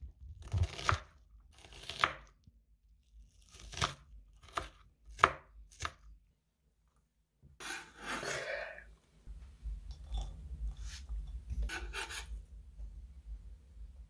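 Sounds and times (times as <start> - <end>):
knife scraping cutting board: 7.6 - 8.8, 10.8 - 12.3.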